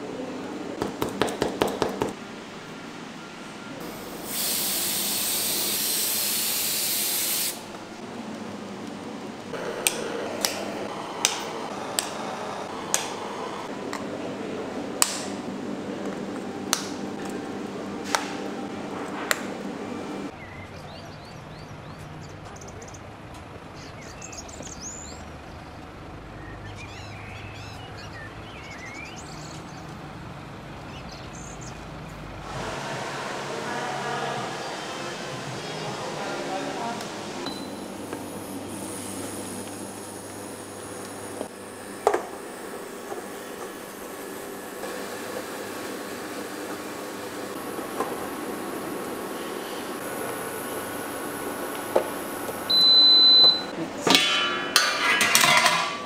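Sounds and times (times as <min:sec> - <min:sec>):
spray gun hissing: 0:03.8 - 0:07.7.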